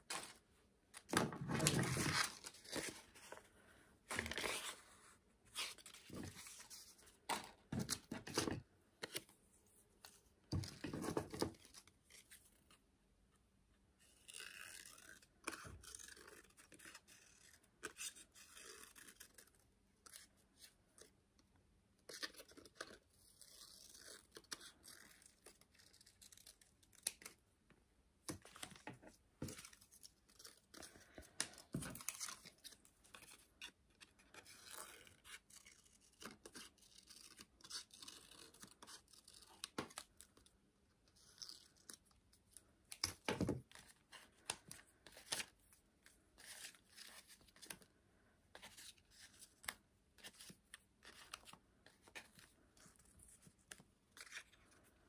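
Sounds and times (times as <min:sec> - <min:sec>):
paper rustling: 0:00.0 - 0:03.5.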